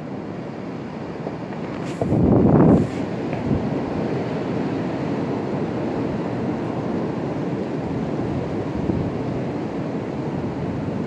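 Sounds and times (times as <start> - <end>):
gusty wind rushing through trees: 0.0 - 11.0.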